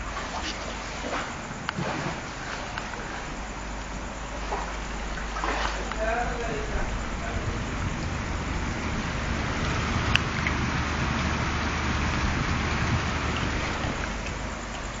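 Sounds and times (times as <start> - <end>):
heavy rain falling: 5.8 - 15.0.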